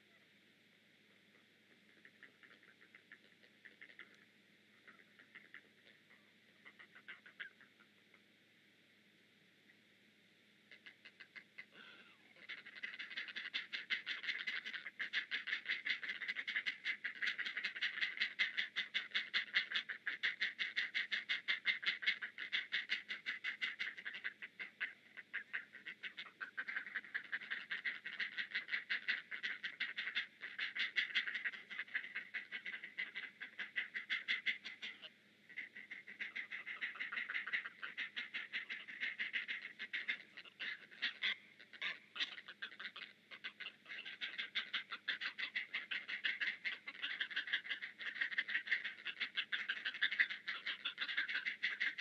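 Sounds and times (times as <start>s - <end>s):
heron chicks clacking begging calls: 1.7s - 4.2s, 12.4s - 52.0s.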